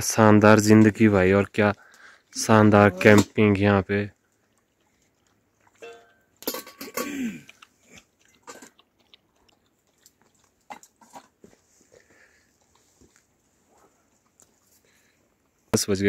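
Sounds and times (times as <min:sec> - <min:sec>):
dog crunching and chewing food: 0:04.1 - 0:06.5, 0:07.4 - 0:15.0.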